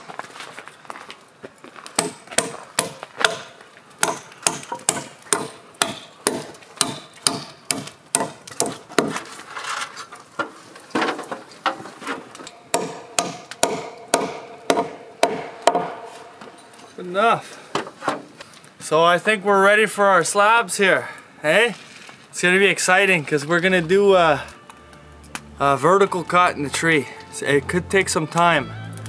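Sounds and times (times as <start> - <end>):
hammer driving nails into wood: 2.0 - 9.2, 12.7 - 16.1.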